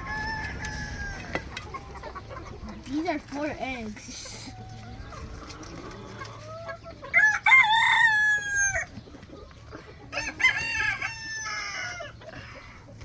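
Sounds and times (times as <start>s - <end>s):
rooster crowing: 0.0s - 1.5s, 7.1s - 8.9s, 10.1s - 12.2s.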